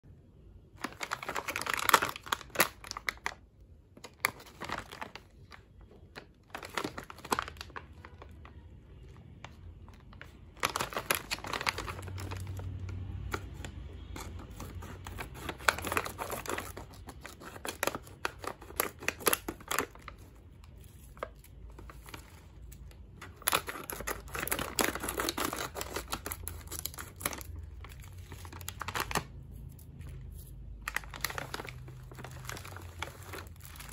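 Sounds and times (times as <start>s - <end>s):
plastic pouch crinkling: 0.8s - 33.9s
scissors cutting plastic: 13.2s - 22.0s, 23.2s - 33.9s
wrapped bars rustling: 14.7s - 33.9s.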